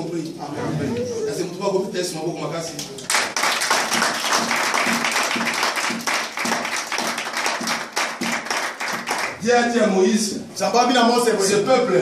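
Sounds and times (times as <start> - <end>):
congregation clapping: 2.7 - 9.8.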